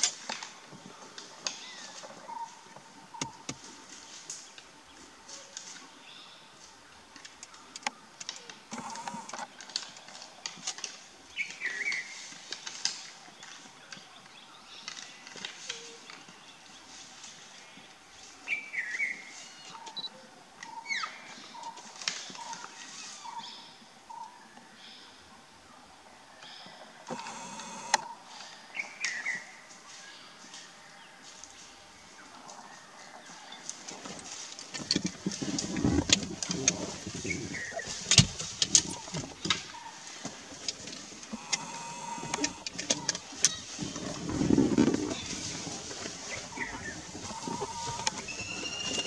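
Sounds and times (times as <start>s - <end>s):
birds chirping: 0.8s - 6.6s, 26.4s - 31.2s, 31.9s - 49.0s
antlers clacking and scraping: 33.8s - 49.0s.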